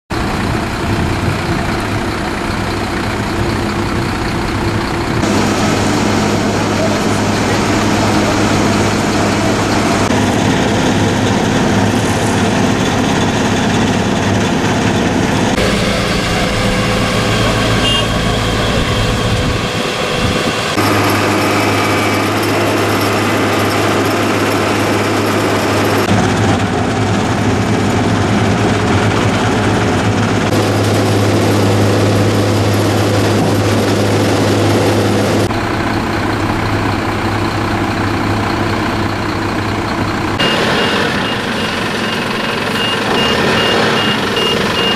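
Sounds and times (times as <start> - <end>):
diesel engines humming: 0.1 - 44.9.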